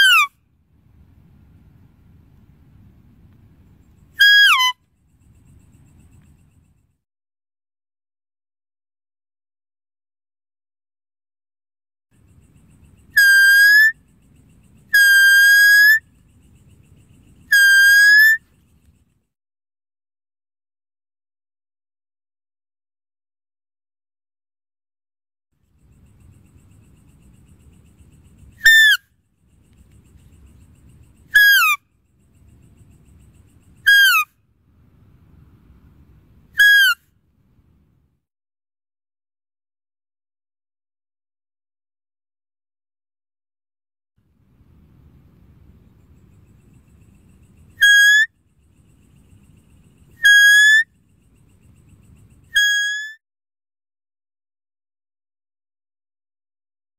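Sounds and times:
faint low background rumble: 0:00.0 - 0:07.0, 0:12.2 - 0:13.2, 0:13.9 - 0:15.0, 0:16.0 - 0:17.5, 0:18.4 - 0:19.3, 0:25.6 - 0:38.2, 0:44.2 - 0:50.2, 0:50.9 - 0:52.5
faint low rumble: 0:00.5 - 0:04.2, 0:44.3 - 0:47.8
deer whistled bleat: 0:04.2 - 0:04.8, 0:13.2 - 0:14.0, 0:14.9 - 0:16.0, 0:17.5 - 0:18.4, 0:28.6 - 0:29.0, 0:31.4 - 0:31.8, 0:36.6 - 0:37.0, 0:47.8 - 0:48.3, 0:50.2 - 0:50.8, 0:52.6 - 0:53.2.

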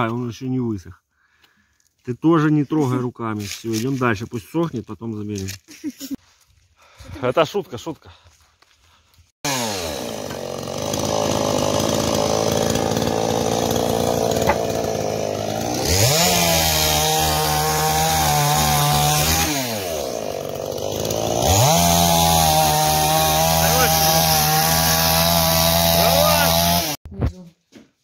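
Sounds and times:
chainsaw idling and revving: 0:09.4 - 0:27.0.

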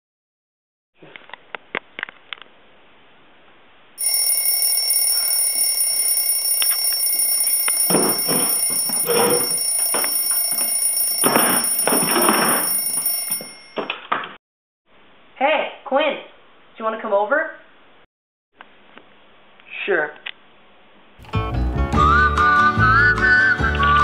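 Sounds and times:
telephone ringing: 0:04.0 - 0:13.9.

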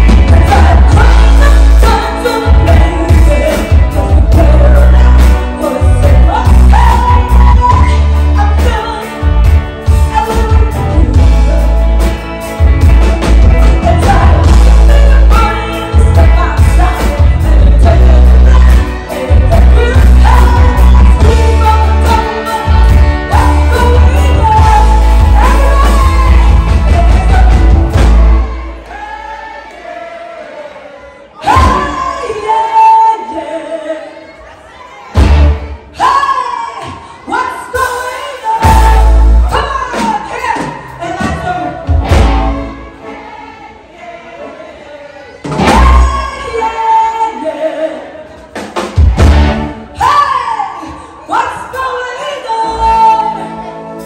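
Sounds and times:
woman singing into a microphone: 0:00.0 - 0:11.8, 0:13.5 - 0:27.8, 0:31.4 - 0:34.5, 0:36.0 - 0:42.6, 0:45.7 - 0:48.4, 0:50.0 - 0:53.7
electric guitars: 0:00.0 - 0:28.9
drums: 0:00.0 - 0:34.0, 0:34.9 - 0:43.8, 0:44.7 - 0:54.0.

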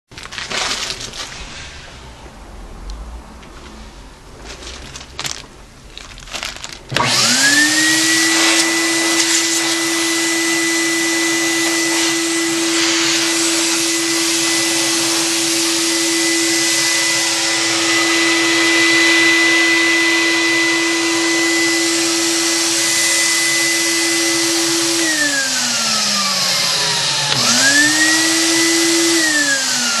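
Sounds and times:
blower motor whine: 0:06.9 - 0:30.0.

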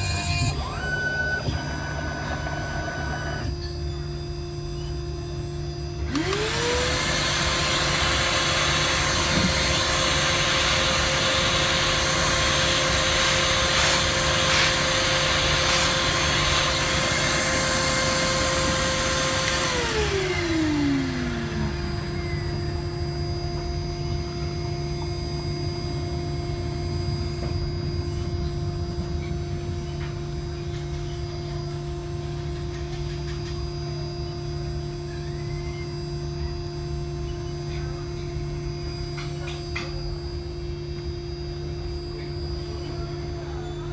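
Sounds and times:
grinding machine spindle whine: 0:00.0 - 0:43.9
steady machine hum: 0:00.0 - 0:43.9
grinding hiss: 0:06.2 - 0:22.9.

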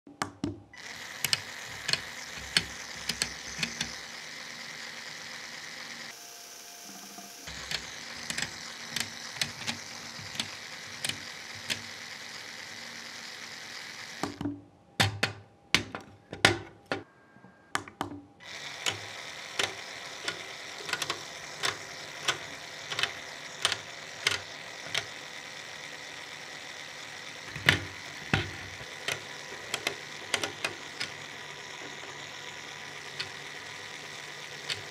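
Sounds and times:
motor-driven plastic gears whirring: 0:00.8 - 0:14.4, 0:18.4 - 0:34.9
plastic parts clicking into place: 0:01.2 - 0:04.0, 0:07.5 - 0:11.8, 0:18.8 - 0:25.2, 0:27.5 - 0:34.9.

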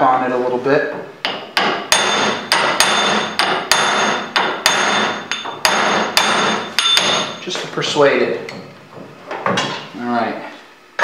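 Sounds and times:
hammer tapping metal drift: 0:01.2 - 0:07.6.

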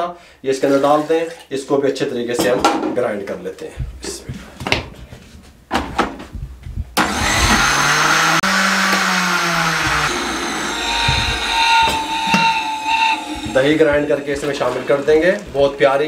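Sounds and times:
blender motor whirring: 0:07.0 - 0:15.1.

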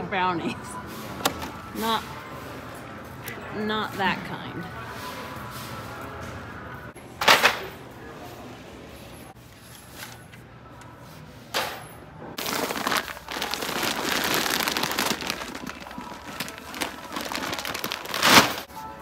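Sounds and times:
plastic bag crinkling: 0:12.4 - 0:18.7.

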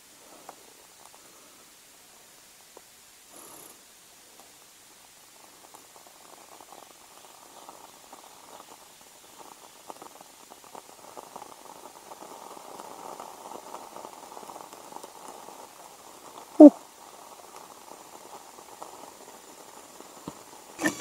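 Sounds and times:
wood fire crackling and popping: 0:04.4 - 0:21.0.

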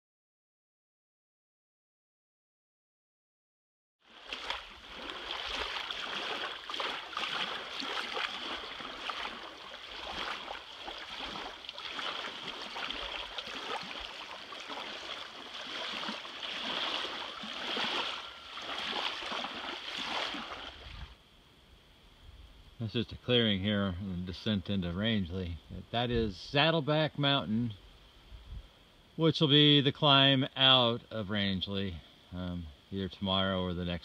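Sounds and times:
running water rushing: 0:04.1 - 0:21.2.

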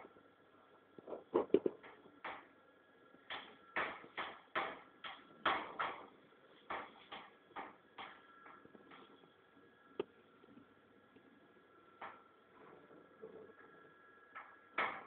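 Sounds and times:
faint steady tone: 0:07.6 - 0:14.6.

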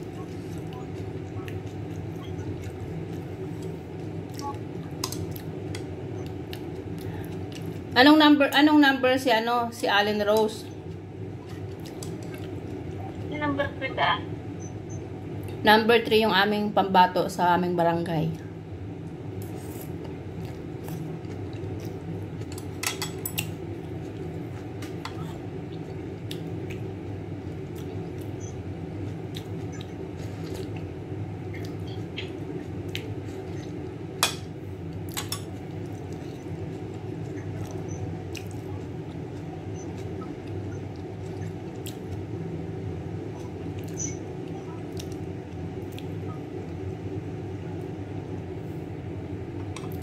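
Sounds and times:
steady low hum: 0:00.0 - 0:50.0
utensils clinking against a dish: 0:22.4 - 0:23.5.

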